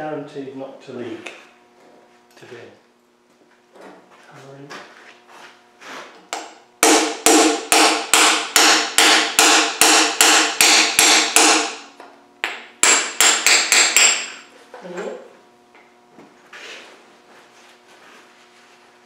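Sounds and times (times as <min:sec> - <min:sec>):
hammer striking metal: 0:06.4 - 0:14.4.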